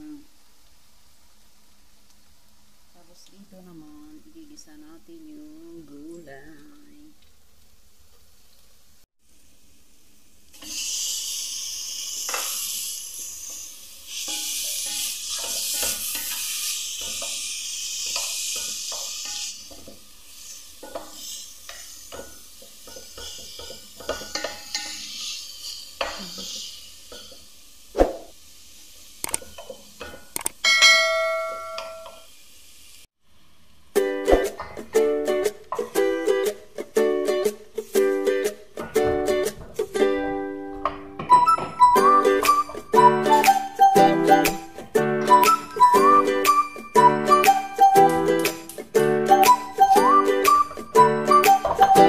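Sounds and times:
food sizzling in hot oil: 9.2 - 33.2
ukulele music: 34.0 - 52.0.

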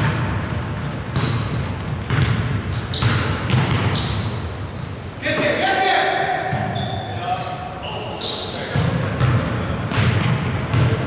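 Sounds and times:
basketball bouncing on wooden floor: 0.0 - 4.2, 8.8 - 11.0
sneakers squeaking: 0.0 - 11.0.

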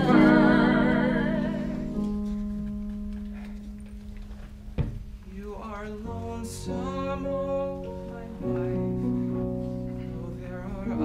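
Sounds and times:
sustained instrumental chords: 0.0 - 4.2.

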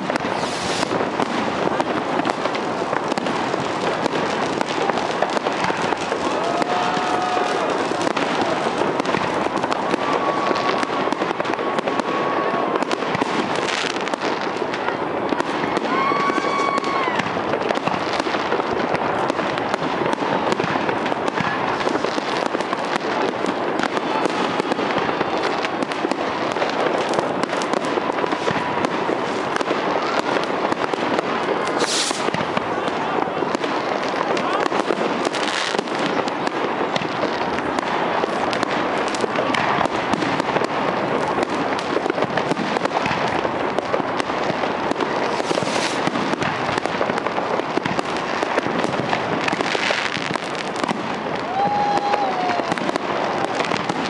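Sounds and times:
fireworks banging and crackling: 0.0 - 54.0
short sharp hiss: 31.8 - 32.3.

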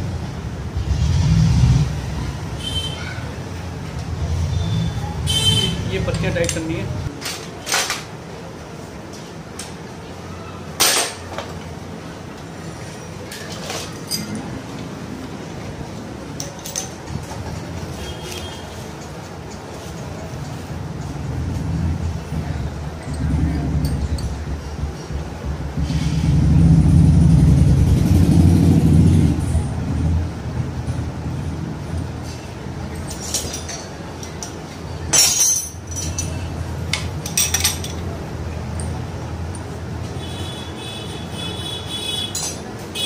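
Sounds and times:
vehicle engine running: 20.8 - 32.4
sharp metallic clatter: 33.0 - 38.0.

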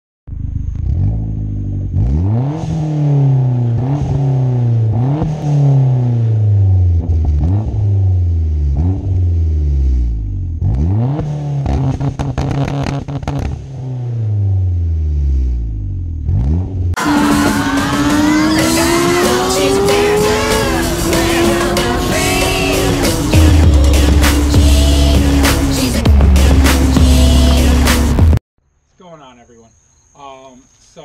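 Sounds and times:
car engine revving: 0.3 - 28.4
exhaust crackles: 4.7 - 28.4.

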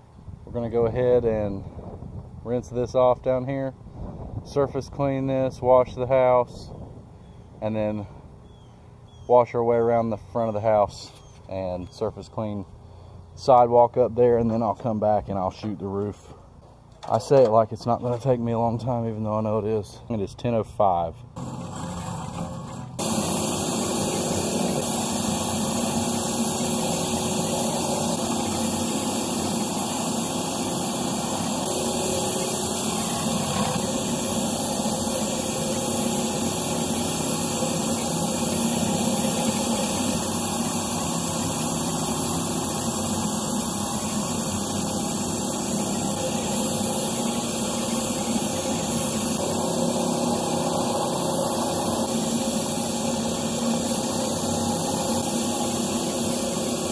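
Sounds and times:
pressure washer water rushing: 21.4 - 56.9.

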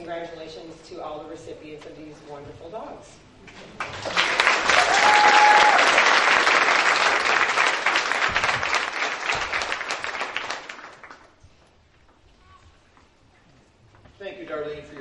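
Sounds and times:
audience applauding: 3.7 - 11.3.

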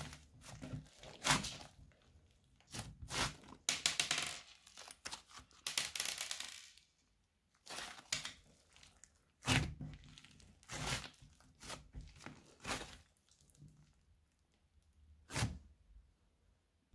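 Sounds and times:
squishy crackly slime squeezing: 7.6 - 14.4.

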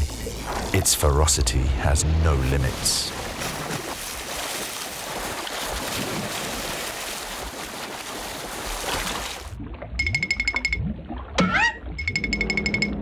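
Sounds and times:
sea water splashing: 1.9 - 12.2.

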